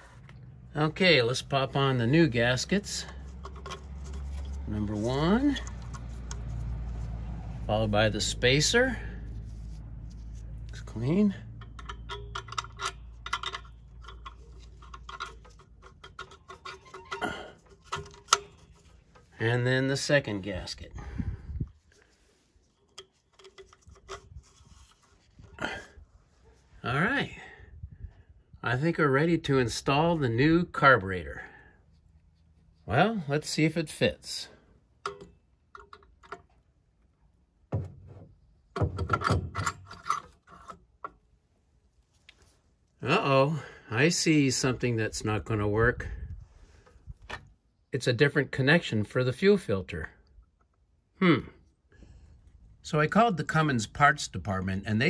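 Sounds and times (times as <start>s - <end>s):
metal scraping on metal: 1.1s - 20.3s, 21.9s - 26.7s
light clicks and taps of parts: 3.0s - 7.6s, 9.2s - 19.3s, 35.0s - 37.1s.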